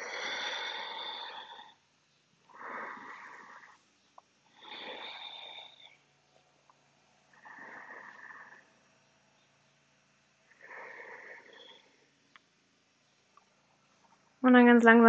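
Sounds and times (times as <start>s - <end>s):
woman breathing deeply: 0.0s - 1.8s, 2.5s - 3.8s, 4.5s - 6.1s, 10.5s - 12.1s.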